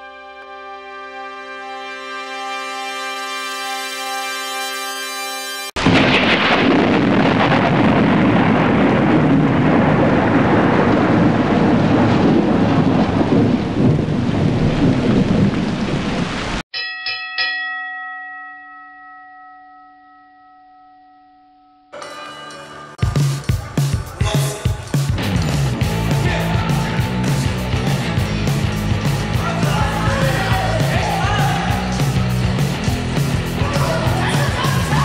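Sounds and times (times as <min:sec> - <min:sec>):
held musical chord: 0:00.0 - 0:05.8
heavy rain: 0:05.8 - 0:16.6
thunder rumbling: 0:05.8 - 0:16.6
bell-like strikes: 0:16.7 - 0:25.8.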